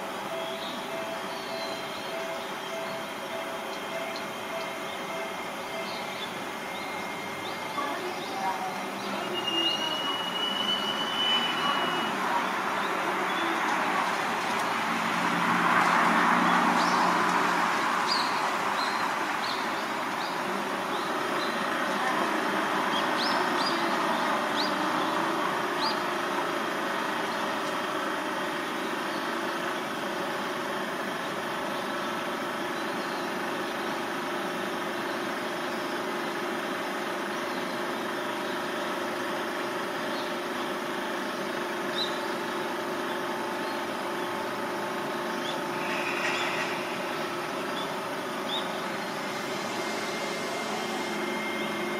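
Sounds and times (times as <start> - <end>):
high steady tone: 0.0 - 14.3, 45.7 - 51.9
outdoor rumble and hiss: 0.0 - 51.9.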